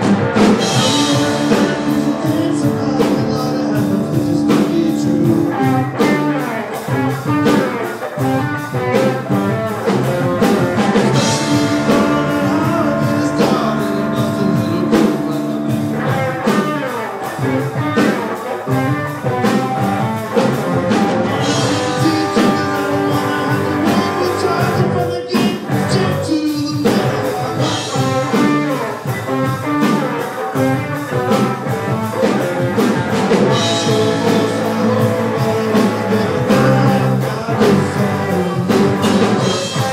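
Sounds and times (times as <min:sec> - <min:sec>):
drum kit: 0:00.0 - 0:39.9
electric bass: 0:00.0 - 0:39.9
electric guitar: 0:00.0 - 0:39.9.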